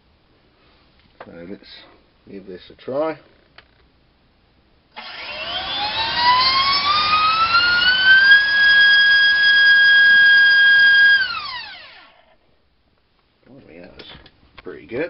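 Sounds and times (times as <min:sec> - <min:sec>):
electric motor and propeller whine: 0:05.0 - 0:12.4.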